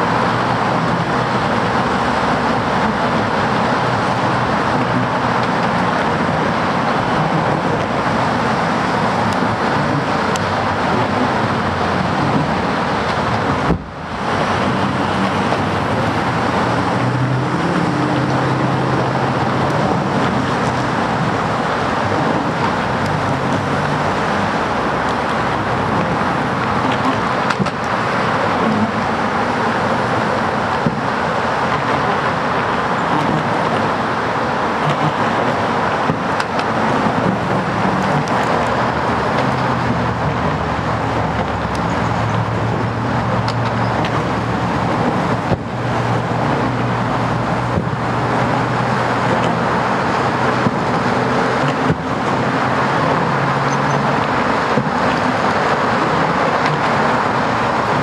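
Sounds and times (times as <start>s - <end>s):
engine hum passing: 0.0s - 58.0s
road traffic noise: 0.0s - 58.0s.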